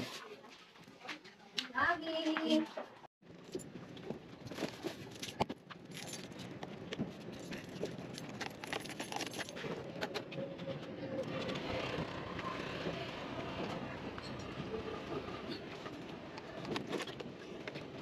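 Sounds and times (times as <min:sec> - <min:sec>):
outdoor background noise: 0:00.0 - 0:18.0
keys jingling: 0:05.1 - 0:06.5, 0:07.3 - 0:09.7.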